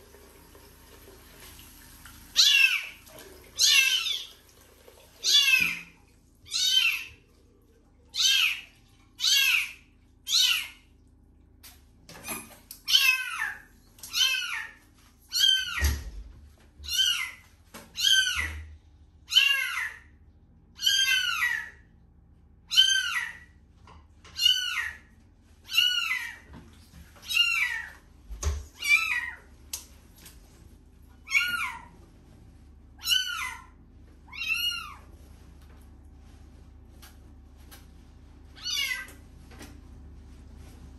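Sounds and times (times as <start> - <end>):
kitten meowing: 34.3 - 35.0, 38.6 - 39.1.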